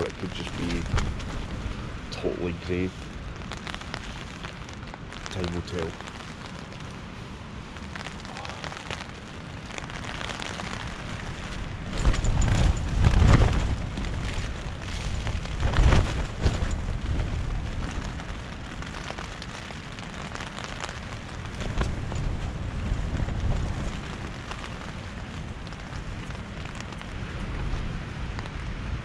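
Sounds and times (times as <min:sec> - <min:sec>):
wind gusts rumbling: 0:00.0 - 0:29.0
tent fabric shaking and rattling: 0:10.1 - 0:19.5.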